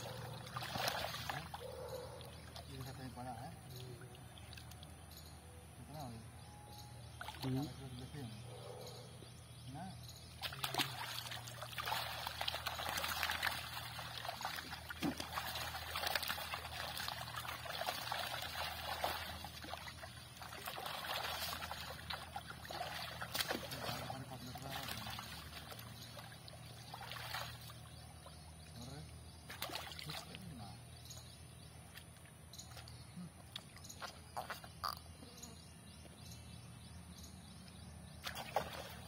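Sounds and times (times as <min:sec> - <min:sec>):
water splashing and dripping: 0:00.0 - 0:05.0, 0:07.2 - 0:08.1, 0:10.3 - 0:27.9, 0:29.4 - 0:30.6, 0:38.2 - 0:39.0.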